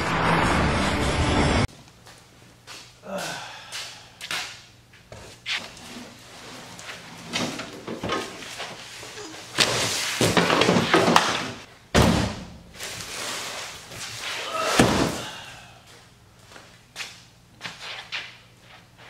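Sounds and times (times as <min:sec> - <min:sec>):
heavy box thud: 0:14.7 - 0:15.3.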